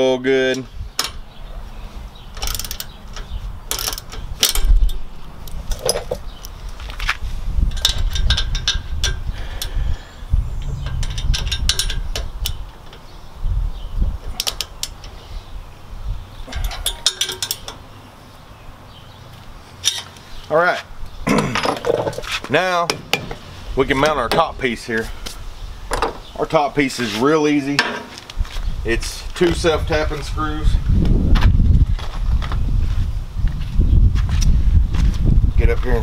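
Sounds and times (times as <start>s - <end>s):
hand ratchet clicking: 2.4s - 5.0s
low rumble: 10.2s - 12.7s.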